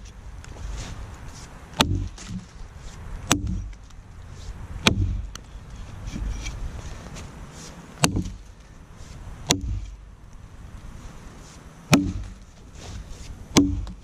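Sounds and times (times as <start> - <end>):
axe chopping log: 1.7 - 2.5, 3.2 - 3.9, 4.8 - 5.4, 8.0 - 8.5, 9.4 - 10.0, 11.9 - 12.5, 13.5 - 14.0.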